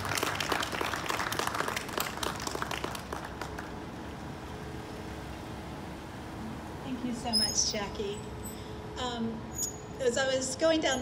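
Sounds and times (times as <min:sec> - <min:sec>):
audience applauding: 0:00.0 - 0:03.8.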